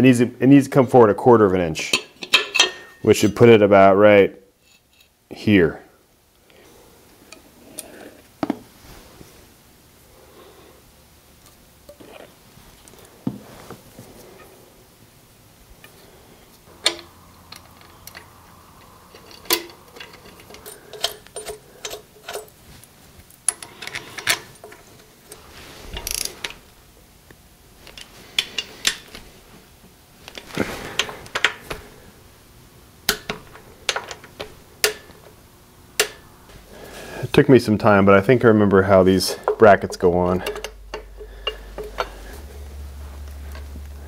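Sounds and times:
rustling of handling: 11.5s - 14.6s, 15.8s - 26.7s, 27.8s - 32.2s
metallic clicks of tools: 16.8s - 22.6s, 40.4s - 42.2s
ratchet turning bolt: 26.0s - 26.4s.

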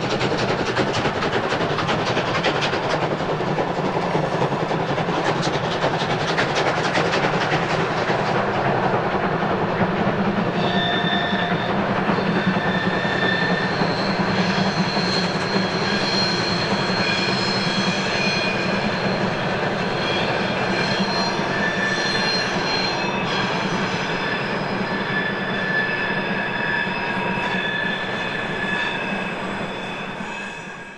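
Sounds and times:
train wheels clattering: 0.0s - 29.8s
steam locomotive exhaust beats: 0.0s - 30.8s
wheels squealing on curve: 10.5s - 30.9s.

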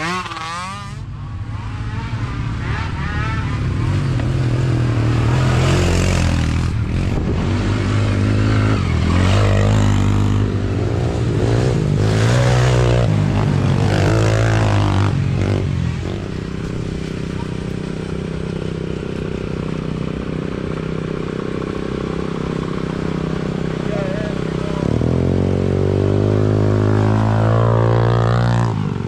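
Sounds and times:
small off-road engines revving: 0.0s - 29.0s.

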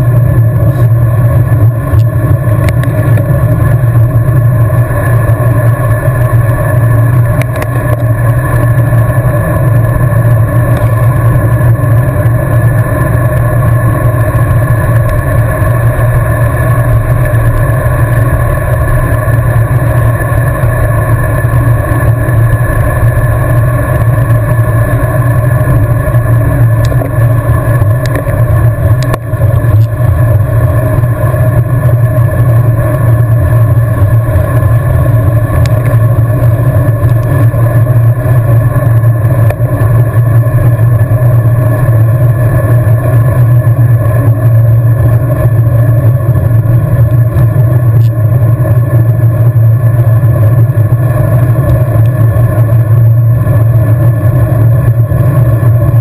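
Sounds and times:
bicycle road noise: 0.0s - 56.0s.

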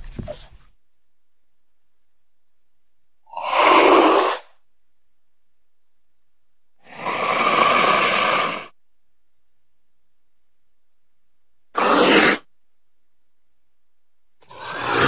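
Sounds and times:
mountain lion hissing exhalations: 11.8s - 12.5s, 14.4s - 15.0s.

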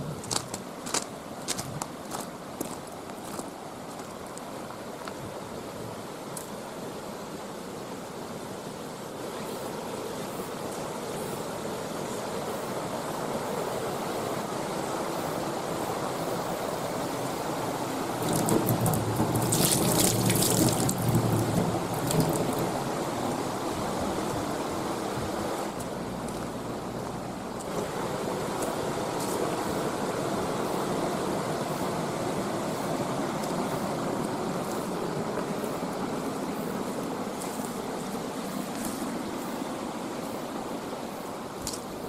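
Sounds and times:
water splashing into metal sink: 18.2s - 22.6s.

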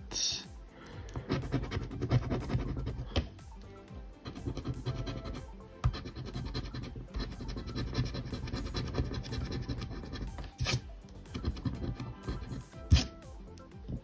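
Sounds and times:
coin scratching lottery ticket: 1.3s - 3.0s, 4.2s - 10.8s, 11.4s - 13.2s.

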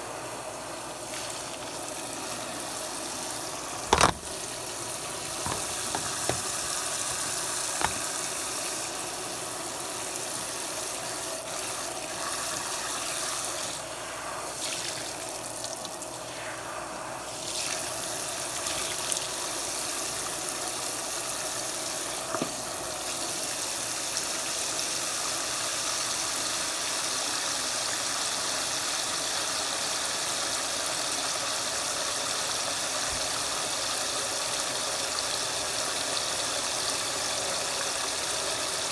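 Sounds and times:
water running into a sink: 0.6s - 16.4s.

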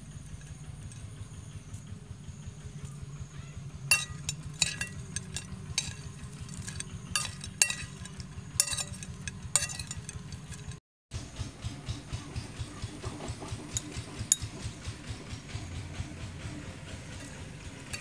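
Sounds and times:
steady low hum: 0.0s - 18.0s
metal spoon clinking on plate: 3.9s - 10.8s, 17.2s - 18.0s.

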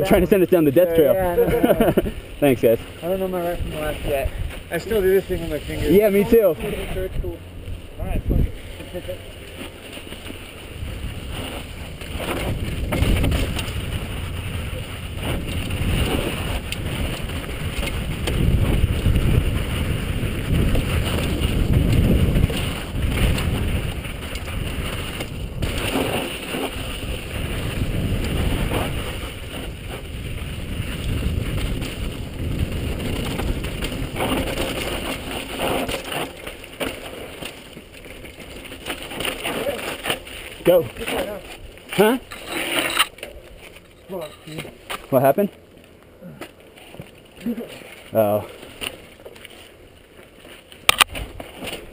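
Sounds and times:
wind buffeting microphone: 0.0s - 9.6s, 10.2s - 35.7s
bike tyres rolling on dirt: 0.0s - 51.9s
bike knocks and rattles: 8.7s - 45.3s, 50.8s - 51.9s.

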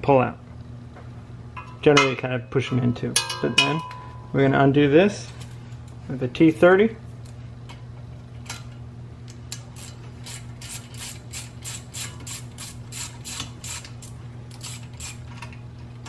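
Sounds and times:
ratchet wrench clicking: 9.5s - 15.2s.

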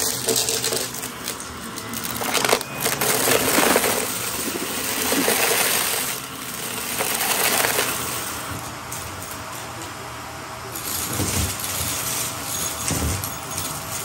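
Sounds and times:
debris crunching through vacuum: 0.0s - 8.7s
vacuum cleaner running: 0.0s - 14.0s.

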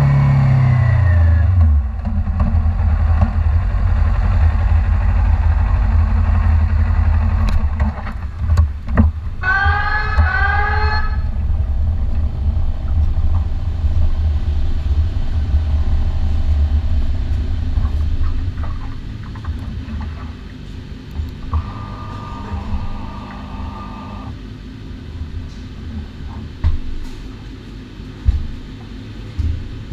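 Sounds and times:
motorcycle engine at low revs: 0.0s - 9.4s, 11.3s - 24.5s.

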